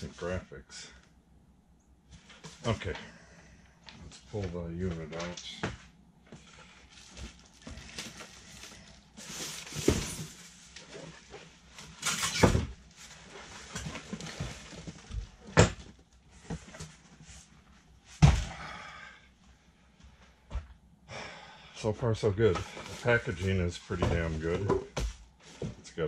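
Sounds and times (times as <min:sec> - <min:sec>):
cardboard and packing rustling: 0:06.2 - 0:18.5, 0:22.4 - 0:26.0.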